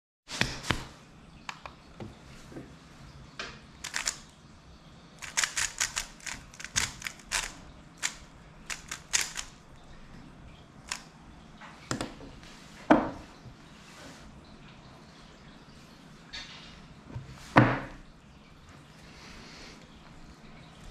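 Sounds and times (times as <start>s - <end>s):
plastic cube layers clicking: 3.8s - 4.3s, 5.2s - 9.6s, 10.9s - 11.1s.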